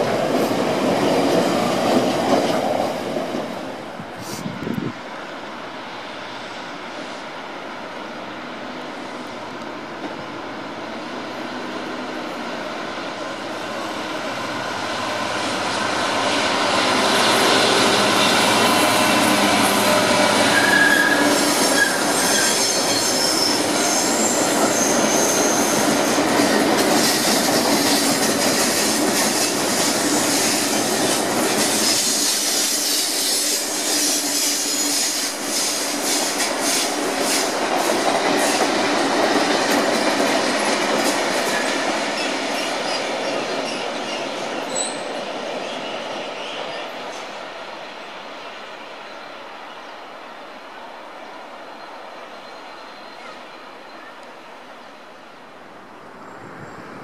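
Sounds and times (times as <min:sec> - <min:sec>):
diesel locomotive rolling past: 0:00.0 - 0:57.0
wheels squealing: 0:17.6 - 0:26.2.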